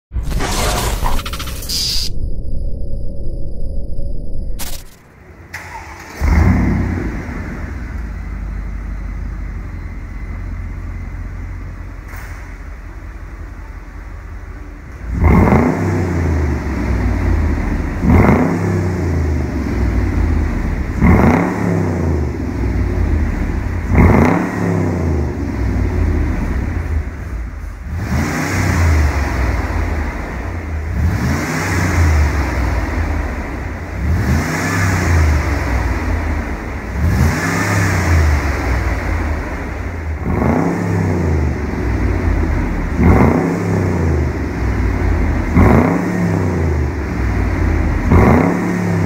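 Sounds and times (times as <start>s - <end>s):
car engine revving: 15.1s - 49.0s.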